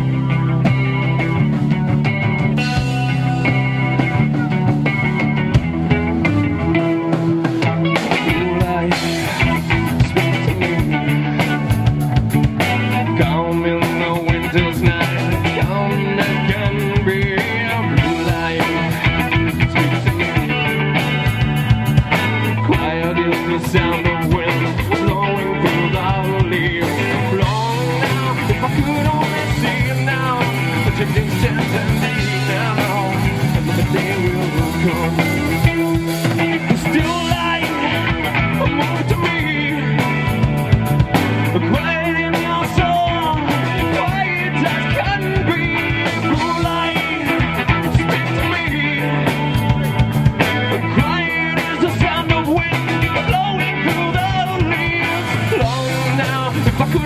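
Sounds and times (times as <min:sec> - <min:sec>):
distorted electric guitar: 0:00.0 - 0:57.0
rock band playing: 0:00.0 - 0:57.0
man singing: 0:06.5 - 0:57.0.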